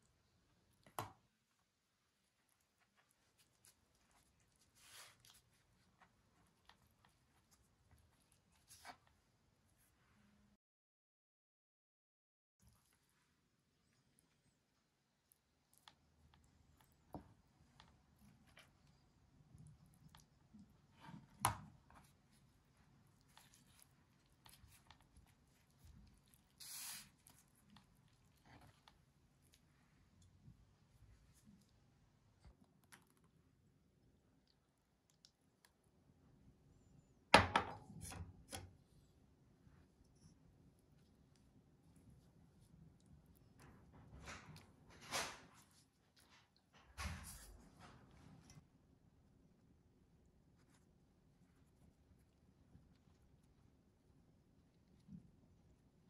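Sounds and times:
pastry sheet rustling and crinkling: 0.0 - 10.2, 12.6 - 33.6, 38.0 - 48.8
pastry sheet rustling: 2.4 - 9.2.

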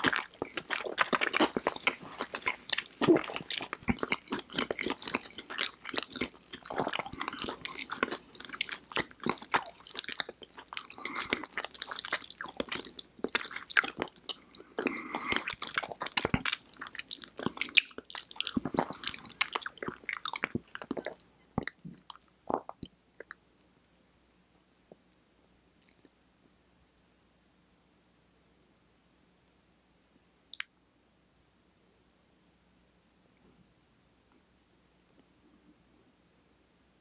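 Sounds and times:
crunchy chewing: 0.0 - 23.4
mouth clicks: 30.5 - 30.8.

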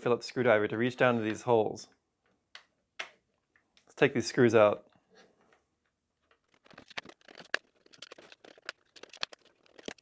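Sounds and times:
screwdriver turning screws in plastic: 6.3 - 10.0.

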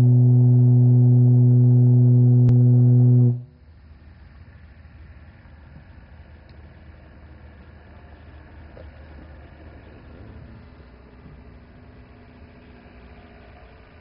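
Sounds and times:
conch shell horn blown: 0.0 - 3.6
faint background noise: 1.4 - 14.0.

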